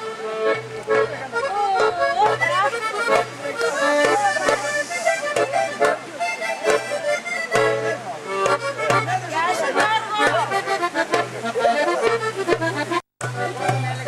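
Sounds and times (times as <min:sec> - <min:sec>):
accordion folk dance tune: 0:00.0 - 0:14.0
percussive taps: 0:01.8 - 0:04.6, 0:05.3 - 0:06.0, 0:06.6 - 0:06.9, 0:07.5 - 0:11.4, 0:12.0 - 0:14.0.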